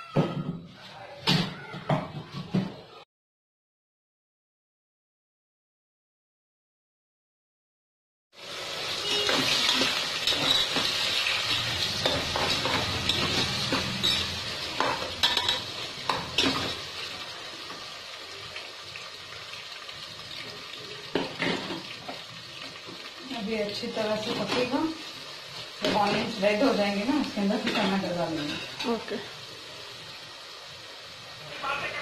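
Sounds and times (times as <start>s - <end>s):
onions sizzling in a pot: 8.3s - 32.0s.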